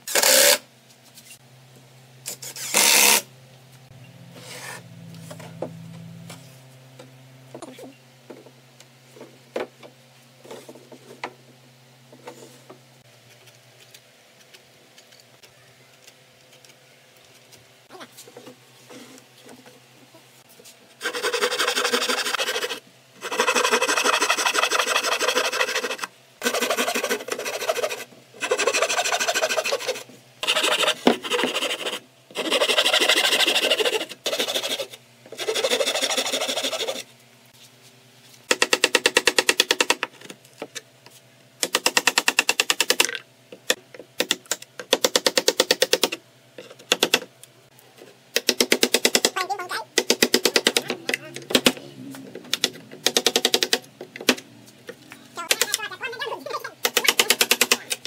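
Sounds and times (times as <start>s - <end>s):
hand saw cutting wood: 0.1s - 0.6s, 2.3s - 3.2s, 21.0s - 37.1s.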